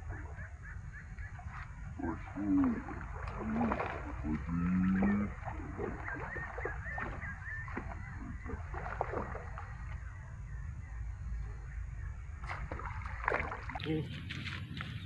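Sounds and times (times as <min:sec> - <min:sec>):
wind on microphone: 0:00.0 - 0:15.0
light water splashing: 0:01.0 - 0:10.2, 0:12.3 - 0:15.0.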